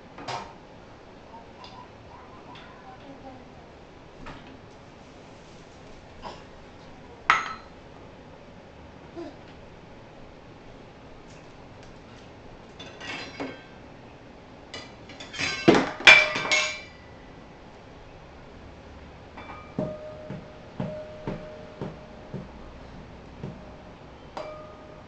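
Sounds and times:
metal bowl clattering: 15.2 - 17.0.

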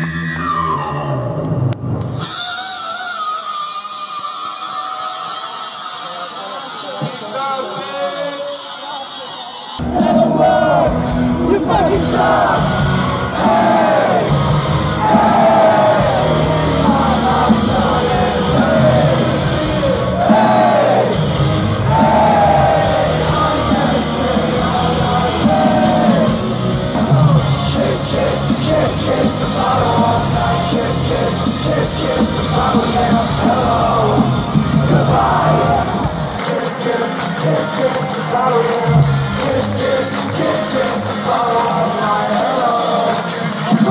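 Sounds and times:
crowd yelling: 2.1 - 43.9
loud rock band music: 9.5 - 43.9
people singing: 11.7 - 21.2, 21.8 - 43.9.

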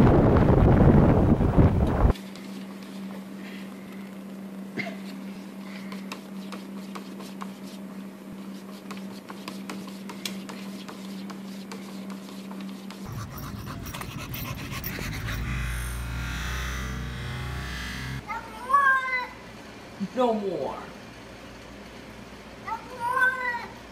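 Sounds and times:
low rumbling noise: 0.0 - 2.1, 13.1 - 18.2
dogs panting: 13.0 - 16.7
low electrical hum: 13.0 - 23.9.

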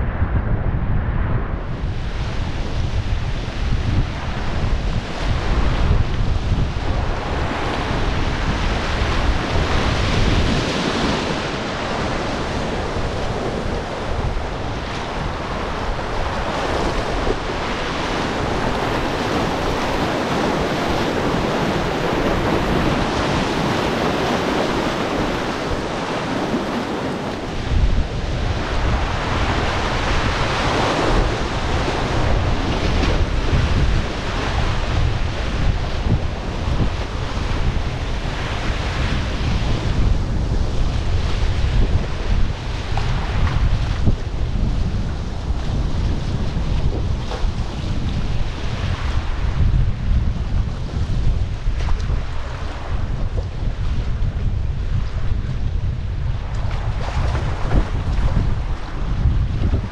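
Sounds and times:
wind buffeting microphone: 0.0 - 59.9
rushing river whitewater: 2.4 - 40.0.

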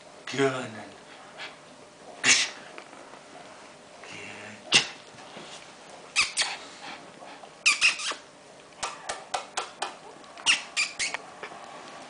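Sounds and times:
small dog yapping: 6.2 - 6.6, 7.6 - 8.2, 10.4 - 11.2.

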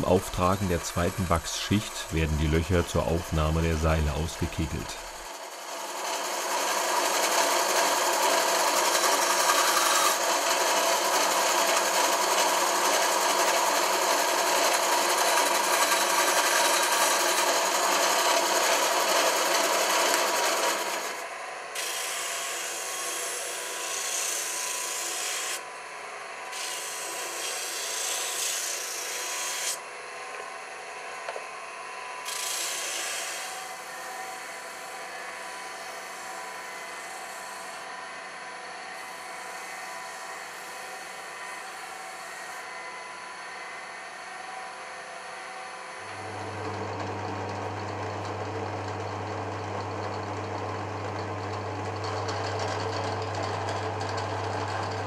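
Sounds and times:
motor hum: 0.0 - 8.7, 46.0 - 55.0
bandsaw cutting wood: 0.0 - 25.7, 26.4 - 30.5, 32.2 - 42.7
sanding disc rasping on wood: 21.8 - 25.6, 26.5 - 29.8.

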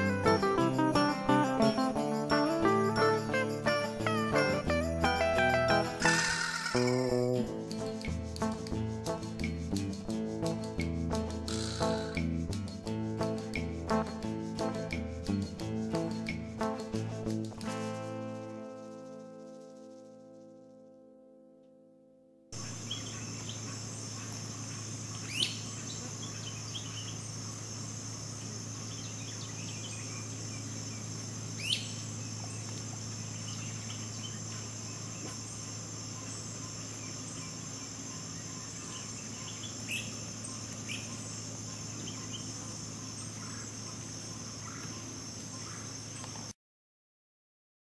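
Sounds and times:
insect chorus: 0.0 - 20.7, 22.6 - 46.5
sharp bird calls: 5.9 - 7.4, 11.4 - 12.2, 22.6 - 27.6, 28.5 - 46.3.

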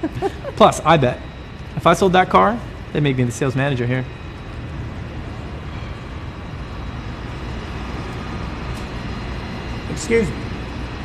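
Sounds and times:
low rumbling background noise: 0.0 - 11.0.

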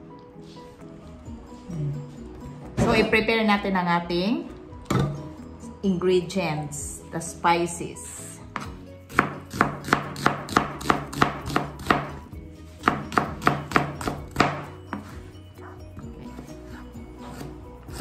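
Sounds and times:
knife chopping on plastic board: 8.5 - 12.1, 12.8 - 15.1.

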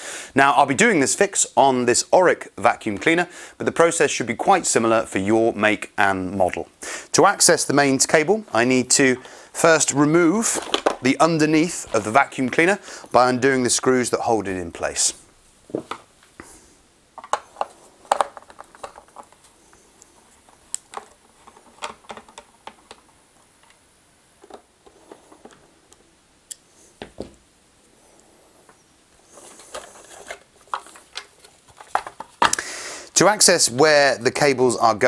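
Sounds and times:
plastic rustle: 10.3 - 12.8, 17.2 - 23.2, 29.2 - 32.6.

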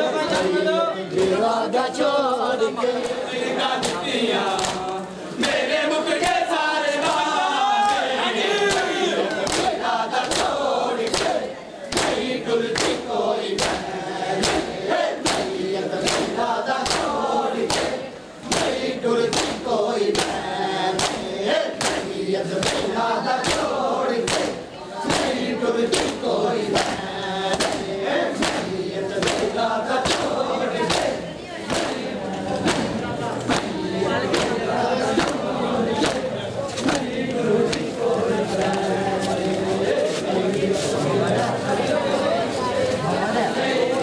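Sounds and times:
men chanting in chorus: 0.0 - 44.0
open-hand chest slaps: 14.4 - 17.1, 17.7 - 20.4, 24.3 - 32.0, 32.6 - 33.7.

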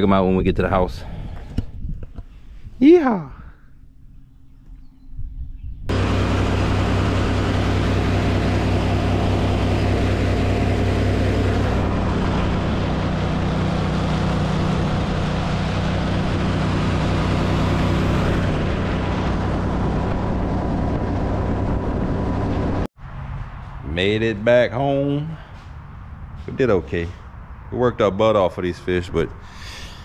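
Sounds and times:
boat motor running at speed: 5.9 - 22.9.

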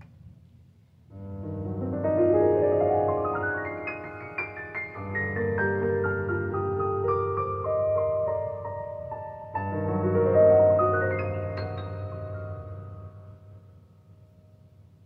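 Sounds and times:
piano playing: 1.1 - 14.4.

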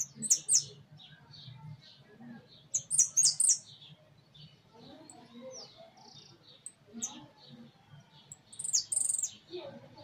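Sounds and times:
finch chirping: 0.0 - 2.0, 2.6 - 9.6.

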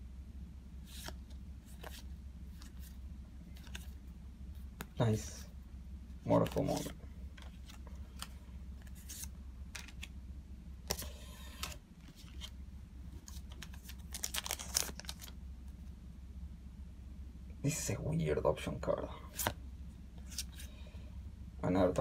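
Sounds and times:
low steady hum: 0.0 - 22.0
cards sliding rustle: 0.8 - 5.0, 6.3 - 10.1, 10.8 - 12.6, 13.2 - 15.3, 19.3 - 19.6, 20.2 - 20.8
trading cards clicking and snapping: 9.1 - 10.1.

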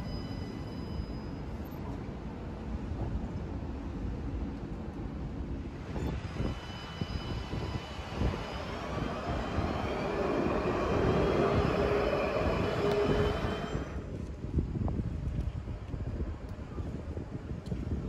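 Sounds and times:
wheels rumbling on rails: 0.0 - 18.0
tram traction motor whine: 5.7 - 14.3.

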